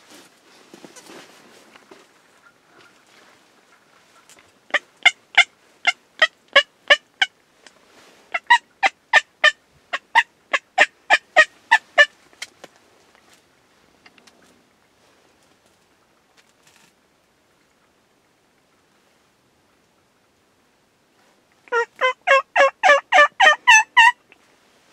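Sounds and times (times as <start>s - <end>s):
turkey yelping: 10.1s - 12.1s, 21.7s - 24.2s.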